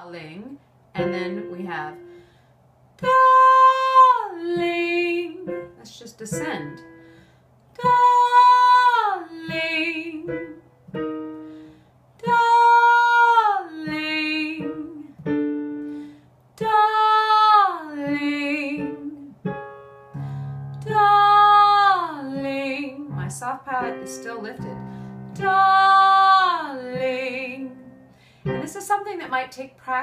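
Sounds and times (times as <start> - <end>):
woman singing vocal exercise: 0.1 - 2.1, 3.0 - 6.9, 7.8 - 10.6, 12.2 - 15.2, 16.6 - 19.4, 20.8 - 30.0.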